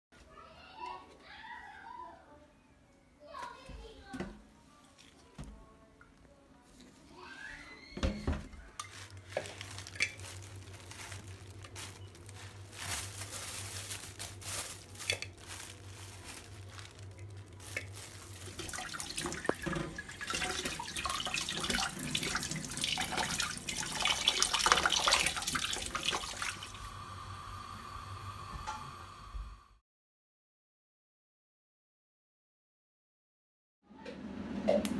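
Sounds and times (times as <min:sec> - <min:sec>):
splashing of food rinsed by hand: 0:08.8 - 0:26.8
tap water running into metal sink: 0:18.4 - 0:26.8.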